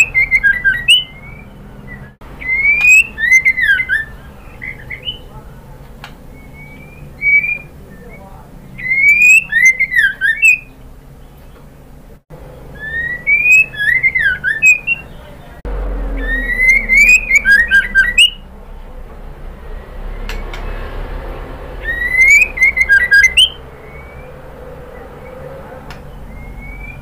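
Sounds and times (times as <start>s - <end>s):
bird whistled call: 0.0s - 5.4s, 6.3s - 10.7s, 12.7s - 15.3s, 16.1s - 18.4s, 21.8s - 24.4s, 26.2s - 27.0s.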